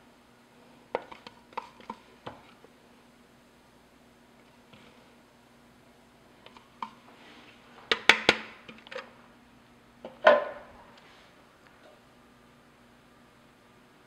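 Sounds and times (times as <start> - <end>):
kitchenware knocks and clatter: 10.2 - 10.7.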